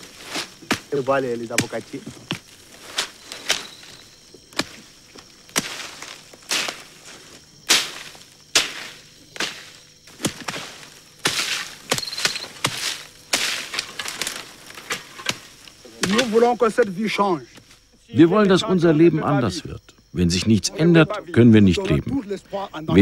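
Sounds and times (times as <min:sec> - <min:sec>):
hoe chopping into soil: 0:05.5 - 0:06.9, 0:07.6 - 0:16.4.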